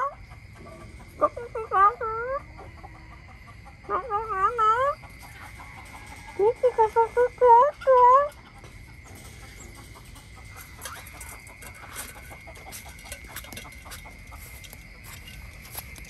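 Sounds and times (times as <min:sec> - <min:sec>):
animal clucking call: 0:00.0 - 0:15.1
faint clicks and crunches: 0:08.5 - 0:16.0.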